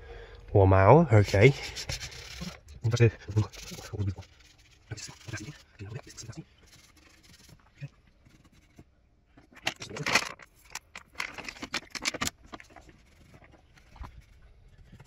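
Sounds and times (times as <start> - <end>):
rag rubbing engine parts: 1.2 - 15.0.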